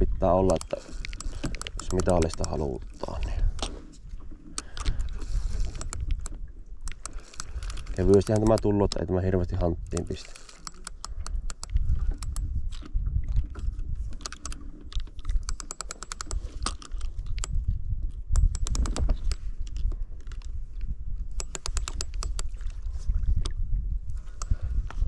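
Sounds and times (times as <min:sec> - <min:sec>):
fishing reel clicking: 0:00.4 - 0:03.4, 0:04.5 - 0:12.5, 0:14.2 - 0:17.6, 0:18.3 - 0:19.5, 0:21.3 - 0:22.6, 0:24.3 - 0:24.7.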